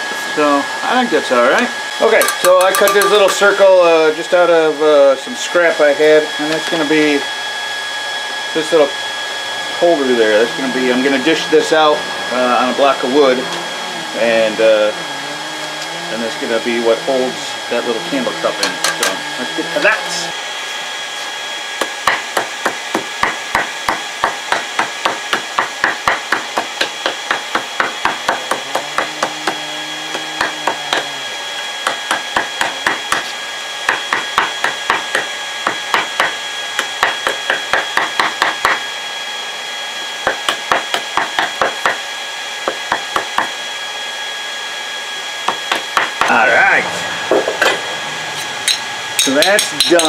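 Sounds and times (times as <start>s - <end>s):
steady high whine: 0.0s - 40.5s, 43.5s - 50.0s
hammer blows on hot metal: 2.2s - 3.6s.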